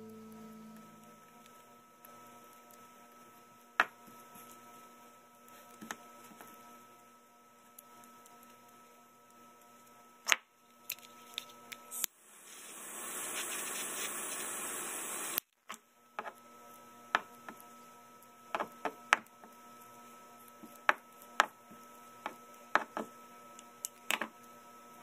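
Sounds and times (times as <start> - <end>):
gas torch flame hissing: 11.9 - 15.4.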